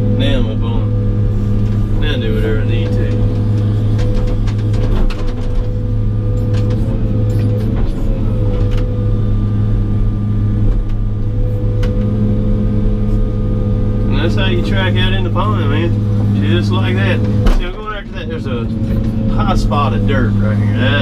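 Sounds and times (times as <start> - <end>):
diesel engine drone: 0.0 - 21.0
faint steady whine: 0.0 - 21.0
clanks and clicks: 1.6 - 9.0.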